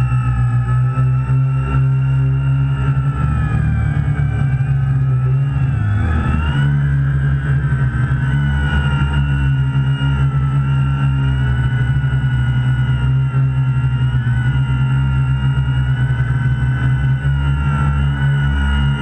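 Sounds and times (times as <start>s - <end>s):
quadcopter motors buzzing: 0.0s - 19.0s.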